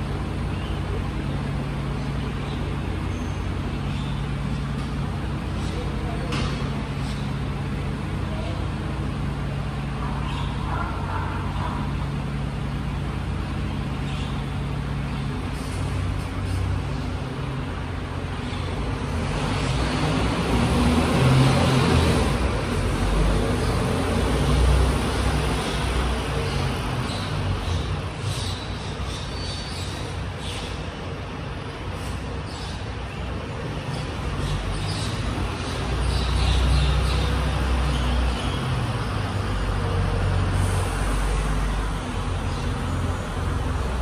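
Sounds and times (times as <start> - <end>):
refuse truck diesel engine: 35.9 - 44.0.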